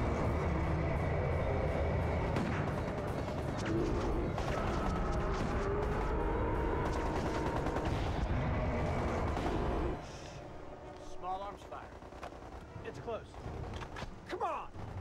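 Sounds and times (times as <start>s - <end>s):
rapid automatic rifle fire: 2.3s - 10.1s.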